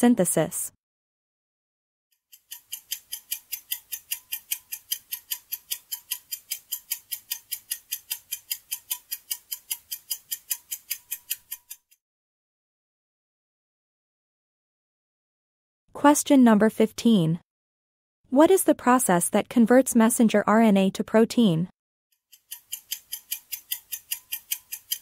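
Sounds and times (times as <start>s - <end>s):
fast clock ticking: 2.3s - 12.0s, 22.3s - 25.0s.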